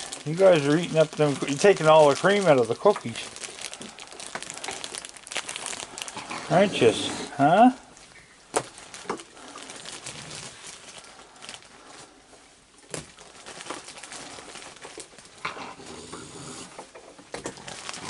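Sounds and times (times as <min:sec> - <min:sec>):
raccoons chewing: 0:00.0 - 0:18.0.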